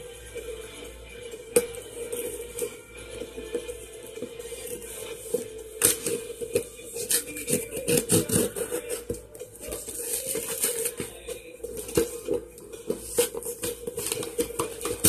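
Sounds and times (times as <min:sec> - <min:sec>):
knife slitting packing tape: 0:07.0 - 0:08.7.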